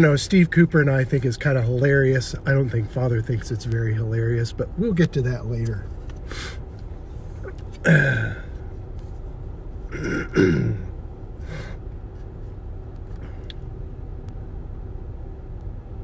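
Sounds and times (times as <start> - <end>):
car engine low rumble: 0.0 - 16.0
man clearing his throat: 7.8 - 8.5, 9.9 - 10.9.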